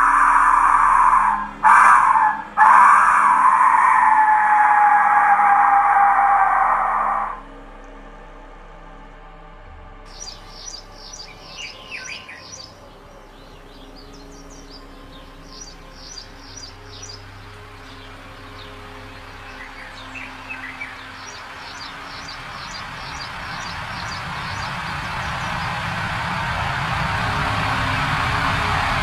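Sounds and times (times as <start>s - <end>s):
bird chirps: 0.0s - 7.4s, 10.1s - 25.7s
rushing noise: 0.0s - 8.2s, 10.0s - 29.0s
faint low drone: 0.0s - 29.0s.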